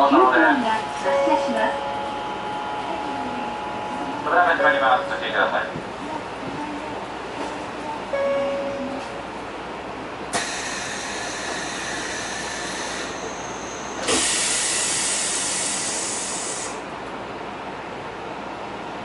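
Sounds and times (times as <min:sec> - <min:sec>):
low train noise: 0:00.0 - 0:19.0
compressed air hissing: 0:14.0 - 0:16.8.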